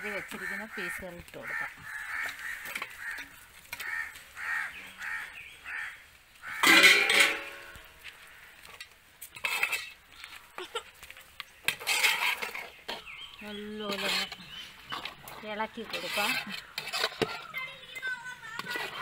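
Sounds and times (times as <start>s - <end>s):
crows cawing: 0.0s - 7.0s, 8.0s - 9.0s, 16.0s - 17.7s
ladle scraping pot: 6.5s - 7.8s, 8.7s - 10.0s, 11.6s - 19.0s
steel pots clanking: 6.5s - 7.9s, 8.7s - 10.0s.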